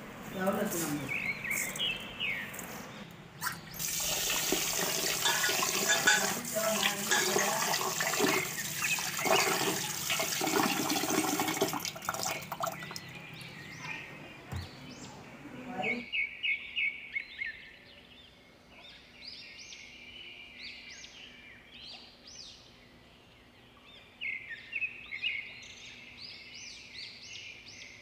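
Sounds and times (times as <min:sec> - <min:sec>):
tap water pouring into pot: 0:03.8 - 0:13.1.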